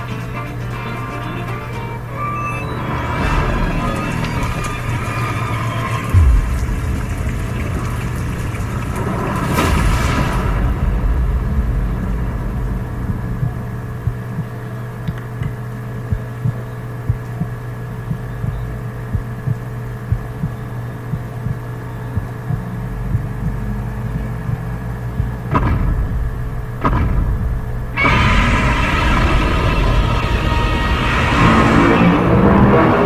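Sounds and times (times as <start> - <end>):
dramatic music: 0.0 - 20.6, 21.2 - 33.0
low rumbling drone: 0.0 - 33.0
deep thumps: 6.0 - 31.9.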